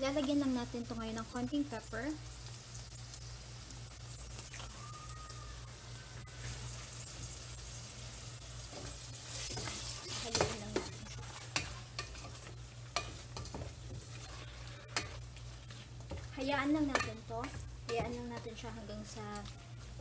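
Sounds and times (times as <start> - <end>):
chicken sizzling in butter: 0.0 - 20.0
utensil scraping a pot: 9.2 - 20.0.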